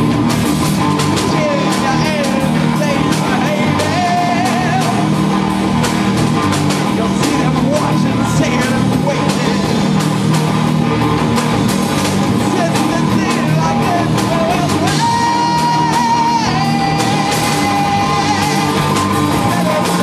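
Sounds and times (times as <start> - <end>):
drum kit with cymbal hits: 0.0 - 20.0
electric guitar: 0.0 - 20.0
person singing: 1.2 - 5.2, 6.9 - 10.1, 12.4 - 20.0.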